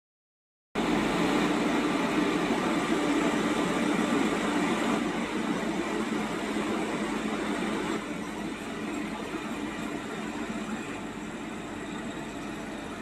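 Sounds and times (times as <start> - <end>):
locomotive machinery whirring hum: 0.8 - 13.0.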